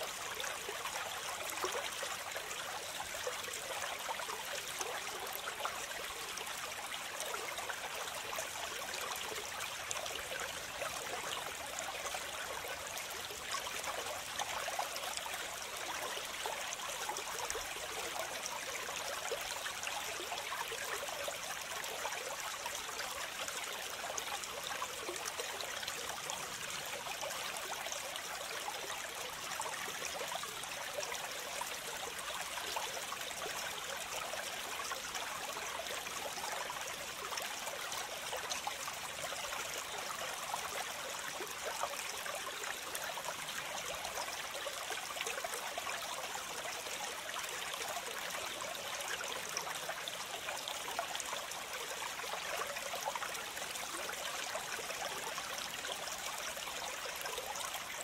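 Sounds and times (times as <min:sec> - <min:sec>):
stream running water: 0:00.0 - 0:58.0.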